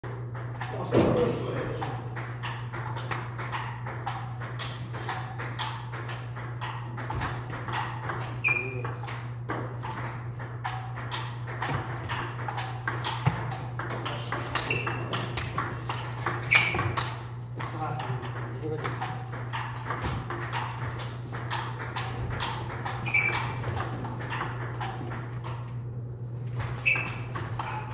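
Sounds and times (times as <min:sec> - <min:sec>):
steady low hum: 0:00.1 - 0:27.9
ping pong ball clicking: 0:01.6 - 0:25.8, 0:26.5 - 0:27.9
short high squeaks: 0:23.0 - 0:23.6, 0:26.8 - 0:27.3.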